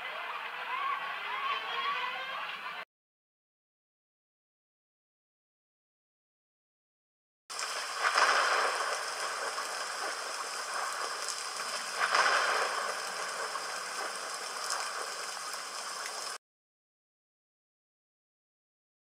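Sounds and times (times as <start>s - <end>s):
sharp thunder cracks: 7.5s - 15.8s
rain hissing: 7.5s - 16.4s.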